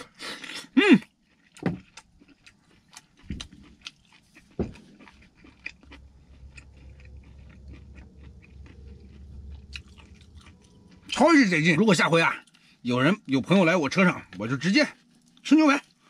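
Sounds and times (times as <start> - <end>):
chewing mouth sounds: 0.4 - 11.2
steady low hum: 2.9 - 16.0.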